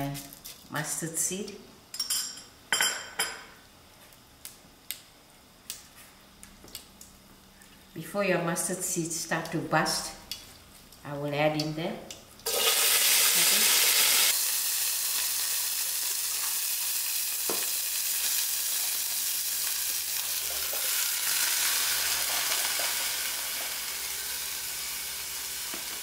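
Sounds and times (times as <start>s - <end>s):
cabbage sizzling in hot oil: 12.4s - 26.0s.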